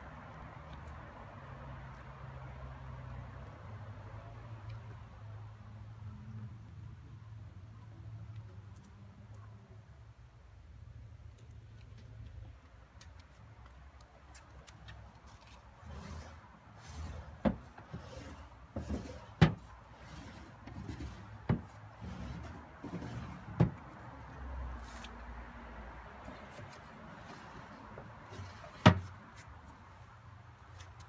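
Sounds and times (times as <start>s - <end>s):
wooden drawers sliding: 15.8s - 23.8s, 27.1s - 29.1s.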